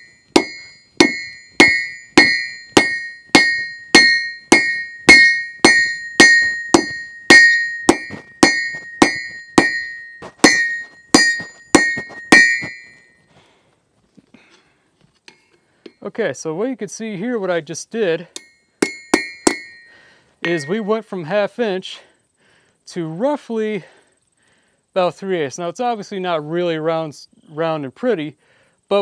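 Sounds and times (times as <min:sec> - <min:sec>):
hammer striking steel on anvil: 0:00.0 - 0:13.0, 0:18.4 - 0:21.0.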